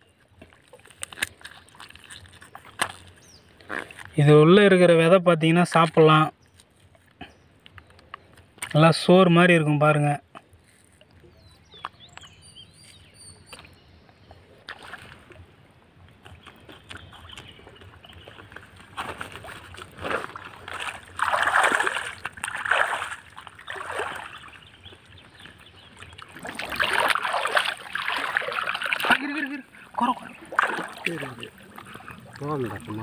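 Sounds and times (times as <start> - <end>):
pond water splashing: 0.0 - 4.1, 13.4 - 33.0.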